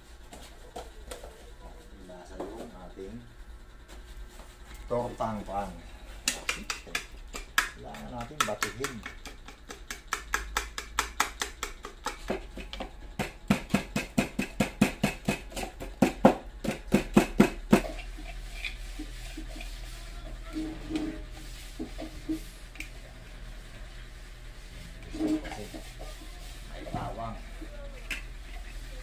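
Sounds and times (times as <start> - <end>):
spoon beating eggs in bowl: 6.2 - 12.8.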